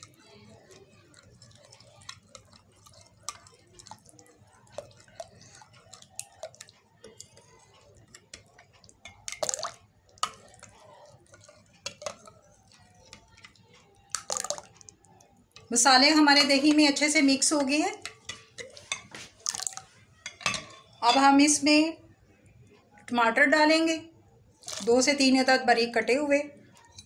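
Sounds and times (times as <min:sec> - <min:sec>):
metal spoon scraping glass bowl: 0:15.7 - 0:19.2.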